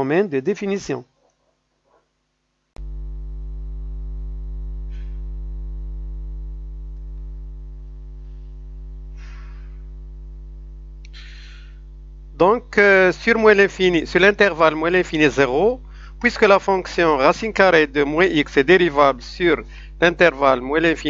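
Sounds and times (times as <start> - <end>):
electrical mains hum: 0.0 - 21.0
faint puffs of noise: 8.2 - 10.0, 11.0 - 12.1, 15.8 - 16.2.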